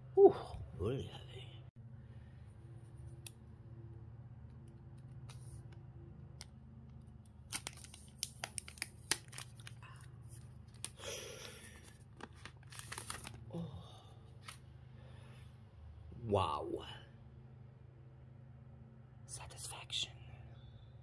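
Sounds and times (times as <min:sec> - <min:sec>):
faint low hum: 0:00.0 - 0:21.0
plastic film peeling and crackling: 0:07.2 - 0:13.5.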